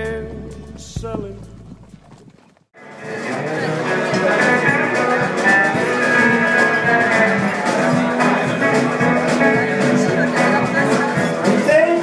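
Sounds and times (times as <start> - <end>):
country band playing live: 0.0 - 1.9, 2.8 - 12.0.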